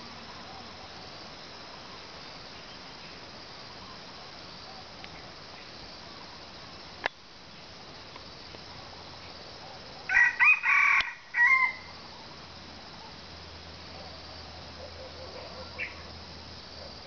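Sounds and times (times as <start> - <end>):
rooster crowing: 10.1 - 12.0.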